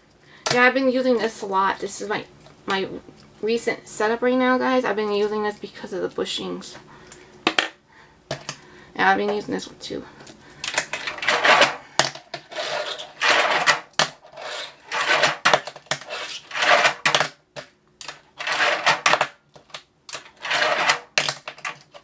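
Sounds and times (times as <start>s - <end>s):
fingerboard wheels rolling on plastic: 10.8s - 17.4s, 18.4s - 19.4s, 20.2s - 22.0s.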